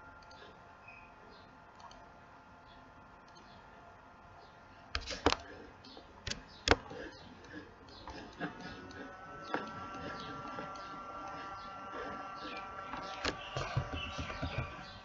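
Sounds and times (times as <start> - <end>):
computer mouse clicking: 0.2 - 0.5, 1.7 - 2.0, 5.0 - 13.7.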